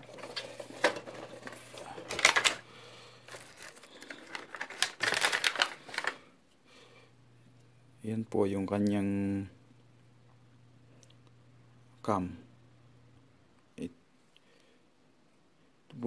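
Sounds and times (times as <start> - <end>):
plastic packaging crackling: 0.0 - 6.3.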